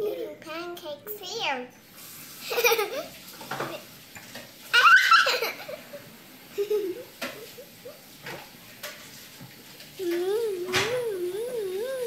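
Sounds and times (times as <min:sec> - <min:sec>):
young child laughing: 0:02.4 - 0:03.2, 0:04.7 - 0:08.0.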